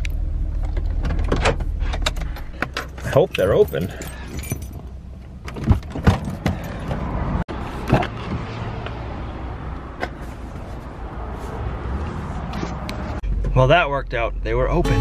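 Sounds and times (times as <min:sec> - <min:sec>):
low steady rumble: 0:00.0 - 0:06.0
knocks and thuds: 0:05.5 - 0:07.1.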